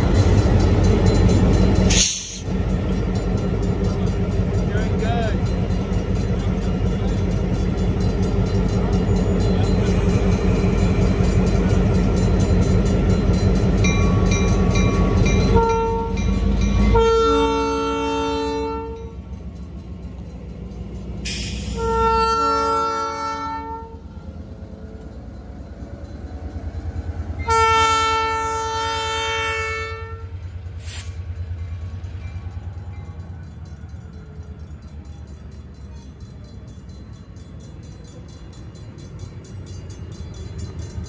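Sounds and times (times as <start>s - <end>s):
diesel locomotive engine running: 0.0s - 41.0s
locomotive air horn blasts: 15.4s - 19.1s, 21.4s - 24.0s, 27.4s - 30.4s.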